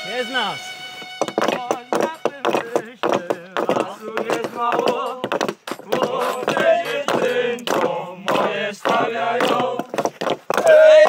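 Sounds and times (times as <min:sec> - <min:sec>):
hatchets knocking on wood: 0:01.2 - 0:10.7
men chanting together: 0:03.8 - 0:05.2, 0:05.9 - 0:09.9, 0:10.6 - 0:11.0.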